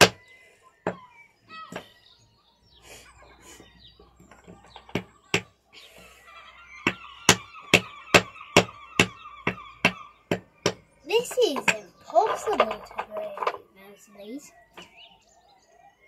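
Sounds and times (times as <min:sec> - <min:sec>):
hammer striking stone: 0:00.0 - 0:00.2.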